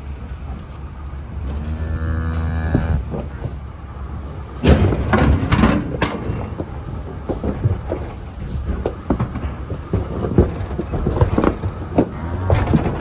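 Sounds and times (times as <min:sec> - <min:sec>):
low engine rumble: 0:00.0 - 0:13.0
cow mooing: 0:01.5 - 0:03.2, 0:12.1 - 0:13.0
clattering knocks in metal trailer: 0:04.4 - 0:13.0.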